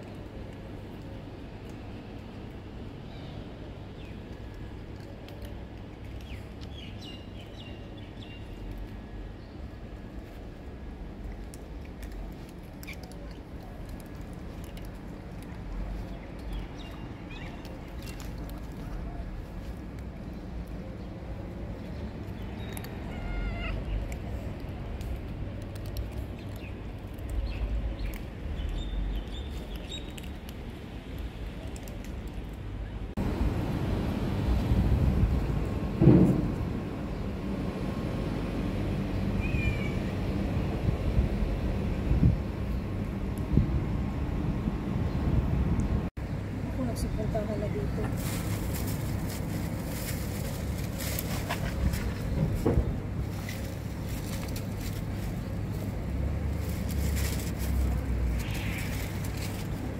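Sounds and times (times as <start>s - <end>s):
low outdoor rumble: 0.0s - 59.9s
cats crunching dry kibble: 4.2s - 6.7s, 10.0s - 32.7s, 48.0s - 52.3s, 53.2s - 59.9s.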